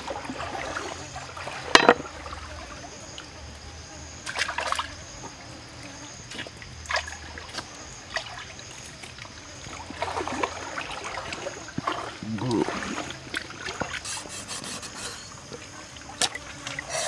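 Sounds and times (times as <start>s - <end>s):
water trickling: 4.2s - 17.0s.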